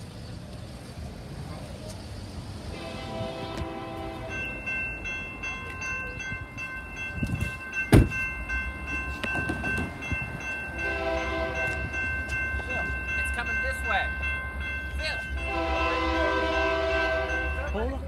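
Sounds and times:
train horn: 2.7 - 4.5, 10.8 - 11.8, 15.4 - 17.6
crossing warning bell ringing: 2.7 - 18.0.

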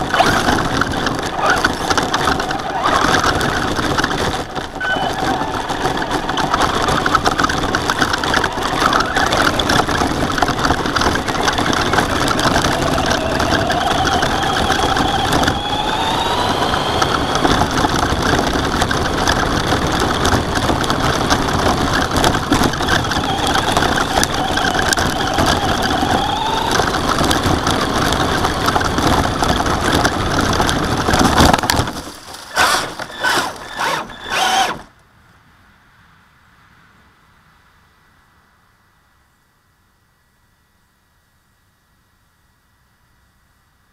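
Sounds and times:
toy truck motor whine: 0.0 - 34.9
gravel crunching and rattling: 0.0 - 35.1.

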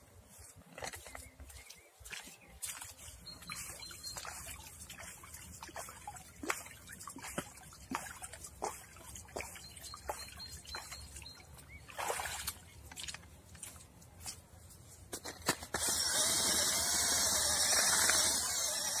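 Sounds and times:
boots wading splash: 0.3 - 14.4
river water sloshing: 0.5 - 14.0.

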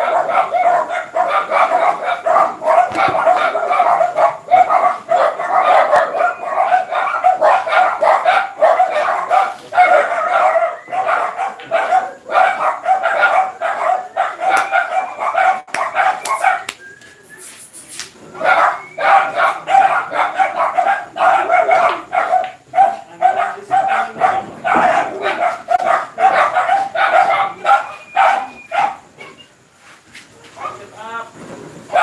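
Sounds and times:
dog barking rapidly: 0.0 - 16.7, 18.3 - 29.4, 30.6 - 30.9.

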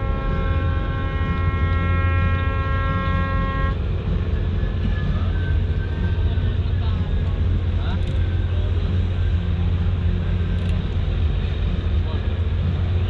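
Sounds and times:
ship's horn blast: 0.0 - 6.7
low rumble: 0.0 - 13.0.

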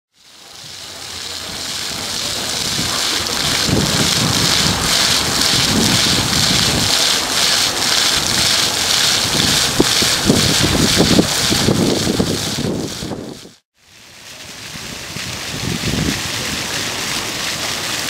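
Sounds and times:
fountain water splashing: 0.1 - 18.0
wind buffeting microphone: 1.4 - 13.6, 14.6 - 16.8.

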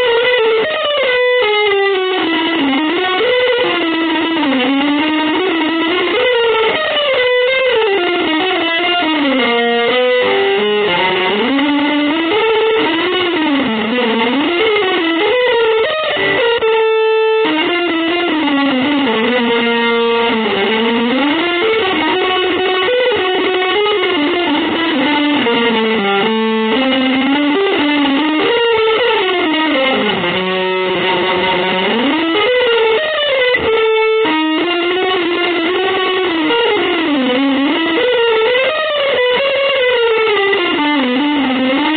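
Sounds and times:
electric guitar sliding lead line: 0.0 - 41.9.

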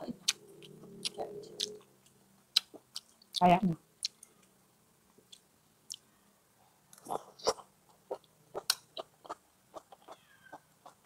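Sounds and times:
chewing and lip-smacking: 0.2 - 1.9, 2.5 - 3.4, 7.0 - 11.0.

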